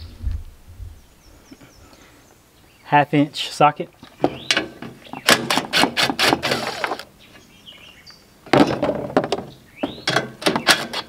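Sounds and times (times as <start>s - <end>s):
impact driver rattling: 4.2s - 7.1s, 8.5s - 11.0s.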